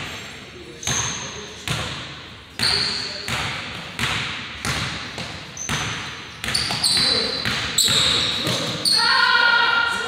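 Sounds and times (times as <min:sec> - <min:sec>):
sneaker squeaks: 0:00.7 - 0:03.4, 0:04.7 - 0:09.4.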